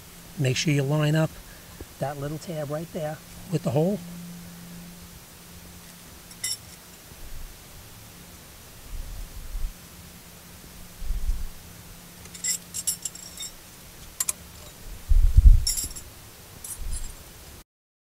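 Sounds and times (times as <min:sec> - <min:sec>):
metal tools clinking: 0:06.3 - 0:06.8, 0:12.2 - 0:14.8, 0:15.6 - 0:17.2
dull low thumps: 0:14.9 - 0:16.0.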